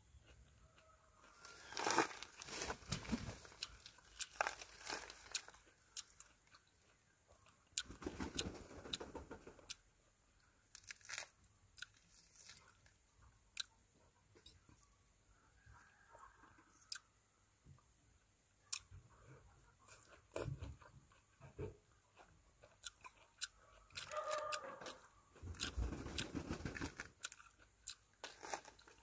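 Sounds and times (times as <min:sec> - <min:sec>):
person chewing: 0:00.1 - 0:08.5, 0:10.7 - 0:13.8, 0:16.8 - 0:17.1, 0:18.6 - 0:26.4, 0:27.0 - 0:29.0
fruit rind tearing: 0:03.4 - 0:06.6, 0:10.7 - 0:12.9.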